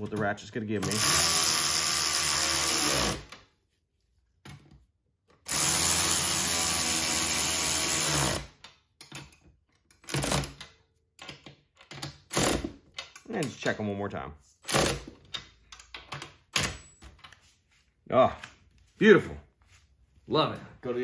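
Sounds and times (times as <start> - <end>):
cordless electric ratchet running: 0.8 - 3.3, 5.5 - 8.5.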